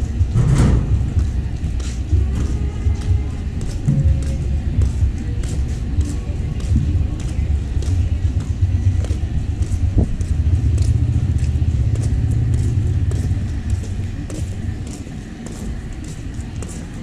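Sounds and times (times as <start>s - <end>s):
motorcycle engine rumbling: 6.5s - 14.8s.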